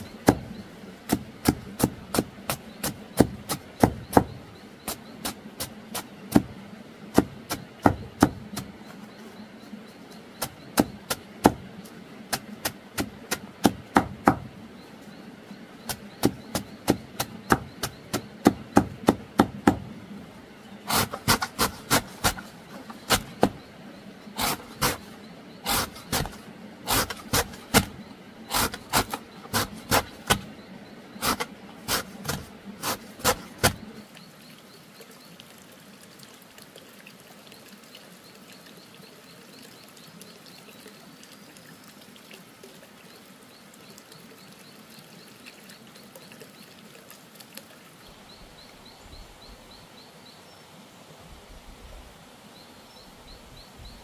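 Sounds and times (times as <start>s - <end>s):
sharp strikes on wood: 12.3s - 14.5s.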